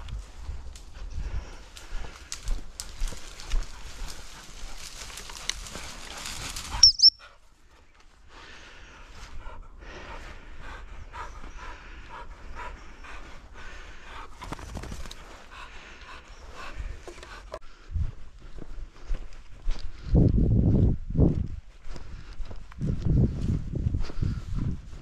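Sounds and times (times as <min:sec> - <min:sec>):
rustling through grass: 0:02.1 - 0:06.9
dog panting: 0:03.2 - 0:08.1, 0:09.1 - 0:17.6.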